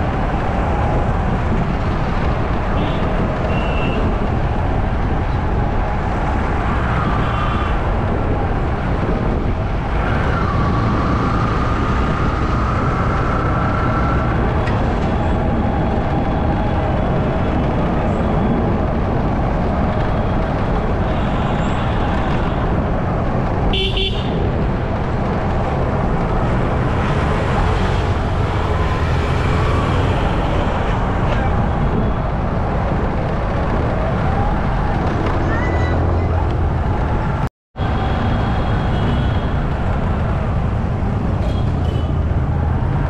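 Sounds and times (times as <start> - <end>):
car horn toot: 23.7 - 24.4.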